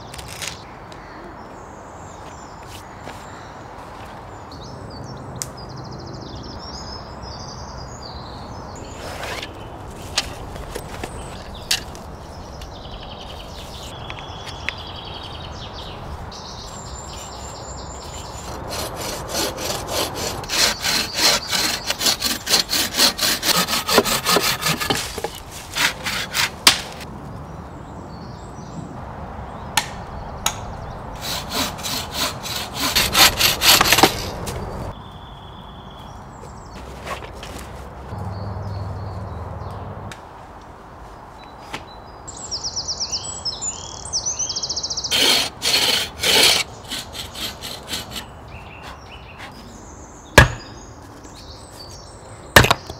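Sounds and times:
birds singing: 0:00.0 - 0:26.7, 0:27.3 - 0:40.0, 0:41.3 - 0:52.9
bow saw cutting branch: 0:08.8 - 0:12.0, 0:16.9 - 0:27.1, 0:31.2 - 0:34.9, 0:45.0 - 0:49.6, 0:50.4 - 0:50.8.

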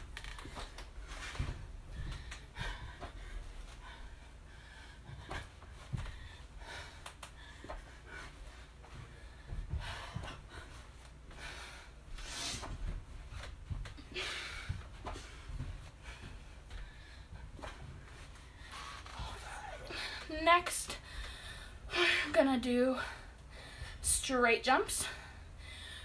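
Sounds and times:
soft low thumps: 0:00.9 - 0:11.5
woman breathing hard: 0:01.2 - 0:13.0, 0:13.9 - 0:24.1, 0:25.0 - 0:26.0.

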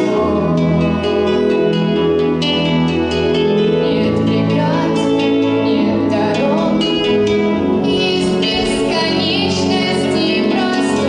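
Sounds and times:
instrumental backing music: 0:00.0 - 0:11.0
girl singing into microphone: 0:03.8 - 0:11.0.

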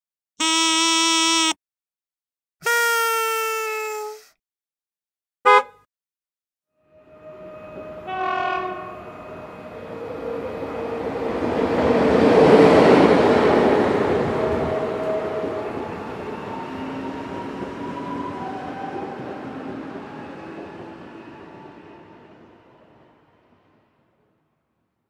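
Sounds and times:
train horn: 0:05.5 - 0:05.7, 0:06.8 - 0:09.9
train passing on rails: 0:06.8 - 0:24.2.

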